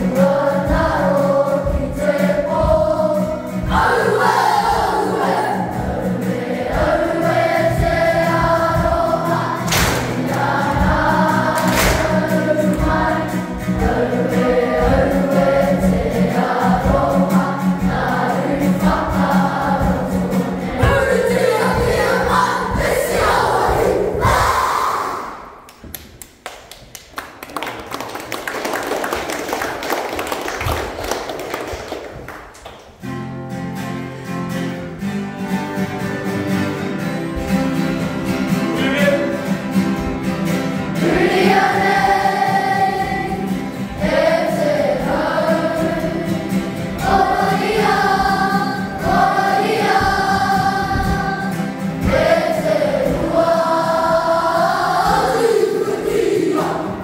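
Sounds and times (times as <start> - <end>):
acoustic guitar chords: 0.0 - 24.2, 33.0 - 57.0
children singing in unison: 0.0 - 25.6, 40.9 - 57.0.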